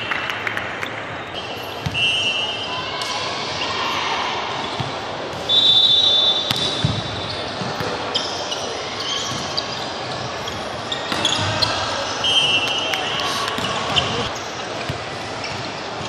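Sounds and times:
murmur of voices: 1.0 - 16.0
referee's whistle: 1.4 - 2.8, 5.4 - 7.4, 11.2 - 13.0
shoe squeaks on wooden court: 5.5 - 12.6, 13.5 - 15.8
volleyball hits: 6.4 - 8.1.

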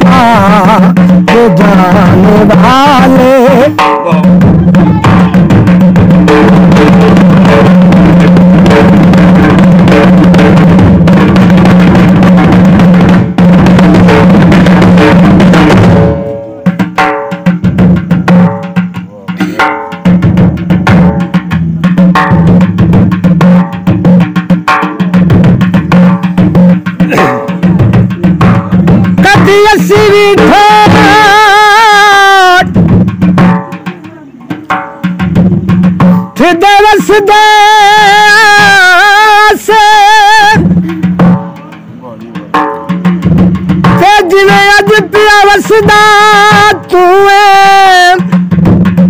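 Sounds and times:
person singing: 0.0 - 5.5, 29.2 - 32.7, 36.4 - 41.7, 44.0 - 48.3
dhol drumming: 0.0 - 49.0.

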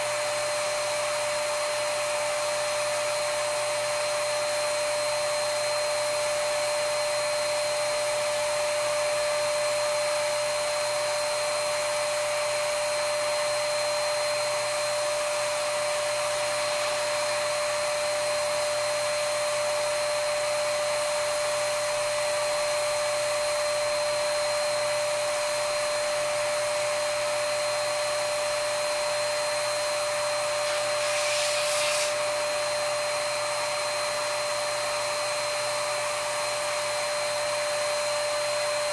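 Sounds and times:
spray turbine whining: 30.0 - 32.5
paint spray hiss: 30.6 - 32.2.

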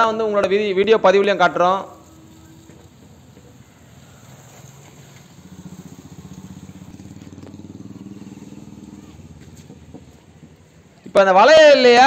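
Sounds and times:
small vehicle engine running: 1.9 - 11.1.

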